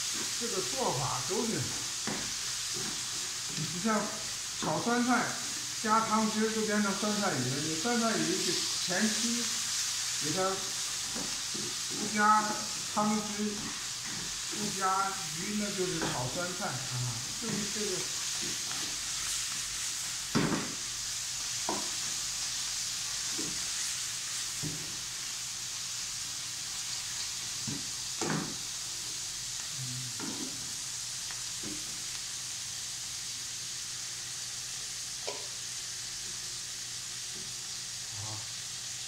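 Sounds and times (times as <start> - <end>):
greens sizzling in a wok: 0.0 - 39.0
spatula scraping a pan: 11.1 - 14.8, 17.4 - 19.6.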